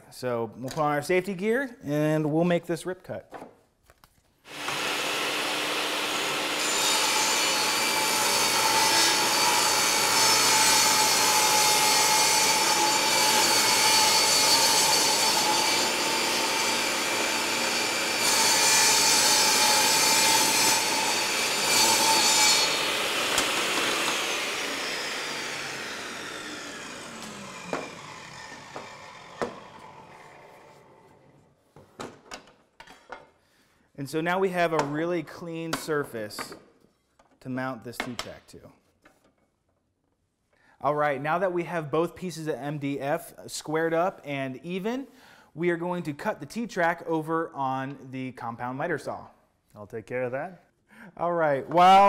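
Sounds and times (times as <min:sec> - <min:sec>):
table saw cutting board: 0:04.5 - 0:31.9, 0:51.7 - 0:52.0
saw blade winding down: 0:19.5 - 0:30.9.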